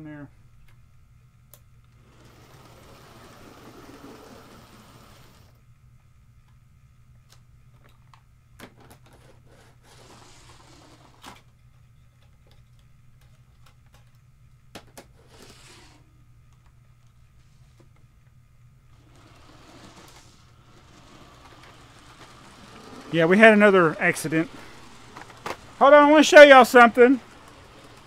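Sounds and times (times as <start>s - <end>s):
steady low hum: 0.0s - 28.0s.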